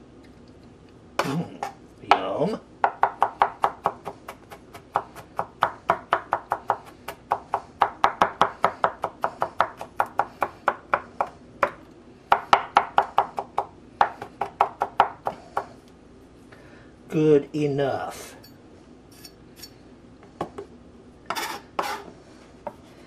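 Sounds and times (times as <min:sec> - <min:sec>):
knife chopping on cutting board: 0:02.8 - 0:15.7.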